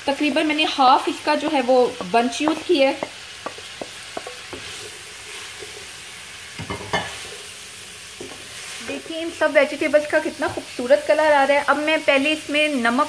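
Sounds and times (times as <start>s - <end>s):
vegetables sizzling in oil: 0.0s - 13.0s
spatula tapping and scraping pan: 0.6s - 7.5s, 8.1s - 9.2s
spatula clattering: 0.7s - 7.5s.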